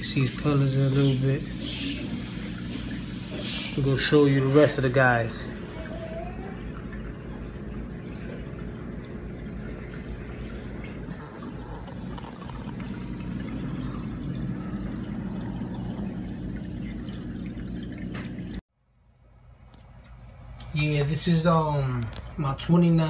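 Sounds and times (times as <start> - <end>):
aquarium filter water splashing: 0.0 - 23.0
low hum: 5.5 - 20.6.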